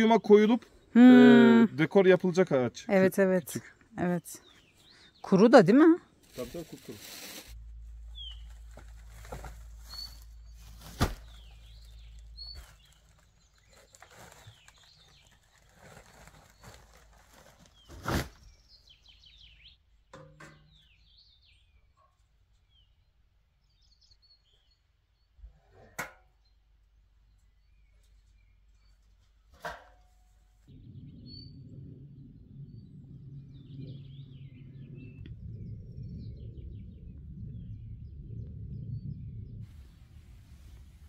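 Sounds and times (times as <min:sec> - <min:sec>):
small birds chirping: 0:00.0 - 0:25.5, 0:26.4 - 0:29.5, 0:32.3 - 0:39.6
low rumble: 0:06.7 - 0:13.2, 0:30.7 - 0:41.0
camping gear knocks and thuds: 0:08.6 - 0:11.9.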